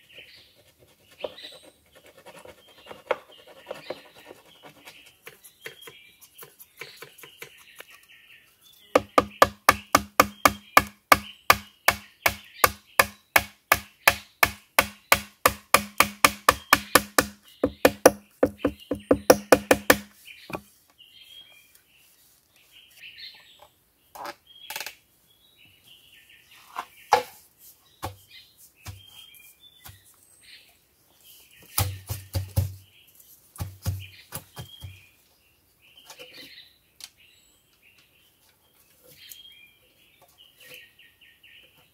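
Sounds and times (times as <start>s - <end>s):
birds chirping: 0.0s - 41.9s
mallet hammering chisel into bamboo: 9.0s - 20.6s, 31.8s - 32.8s.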